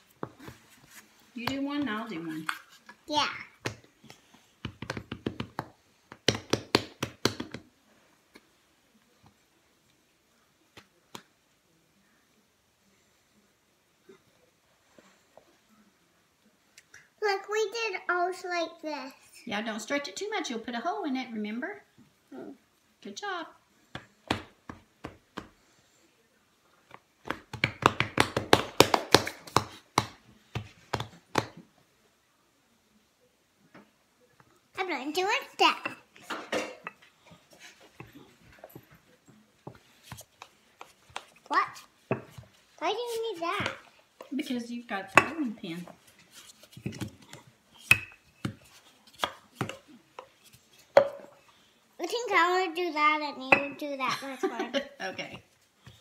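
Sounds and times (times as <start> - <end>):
hands slapping dough: 3.6 - 7.7, 10.7 - 11.3, 23.9 - 25.6, 26.9 - 31.7, 39.6 - 44.3, 46.2 - 51.2.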